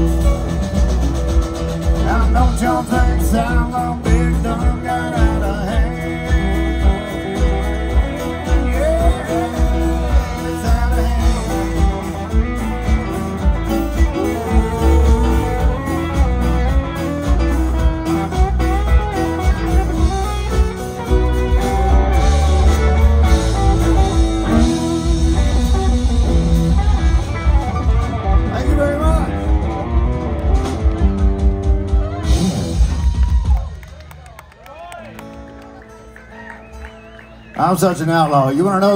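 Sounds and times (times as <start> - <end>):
acoustic and electric guitars: 0.0 - 38.9
bass: 0.0 - 38.9
drums: 0.0 - 38.9.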